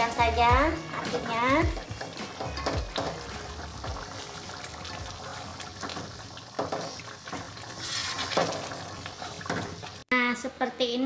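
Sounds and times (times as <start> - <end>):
curry bubbling in a pot: 1.7 - 10.1.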